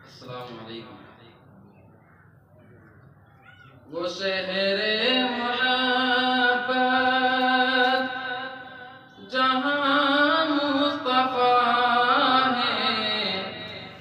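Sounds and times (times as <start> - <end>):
man singing unaccompanied: 3.9 - 14.0.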